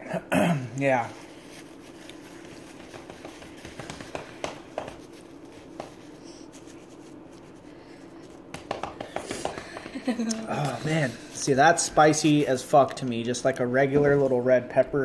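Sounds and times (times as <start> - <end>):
steady low hum: 0.0 - 15.0
faint taps and rustles: 2.0 - 6.2, 8.2 - 10.2.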